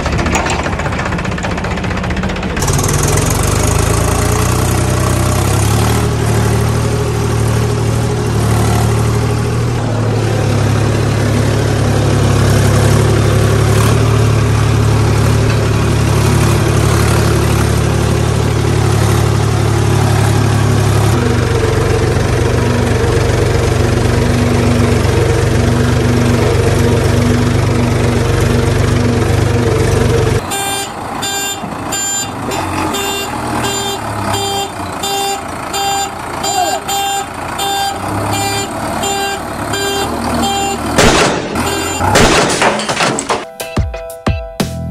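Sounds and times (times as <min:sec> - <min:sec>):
diesel tractor engine running: 0:00.0 - 0:43.6
repeating beeping: 0:41.6 - 0:42.2.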